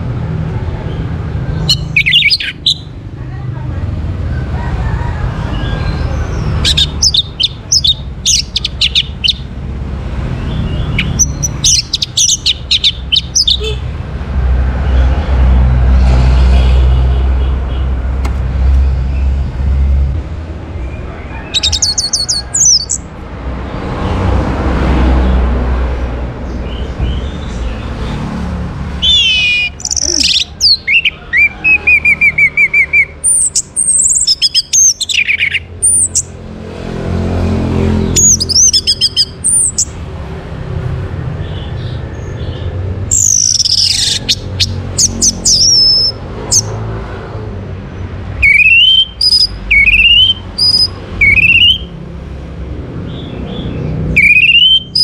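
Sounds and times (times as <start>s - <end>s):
bird singing whistled phrases: 29.0s - 36.2s, 48.4s - 51.9s, 54.1s - 55.0s.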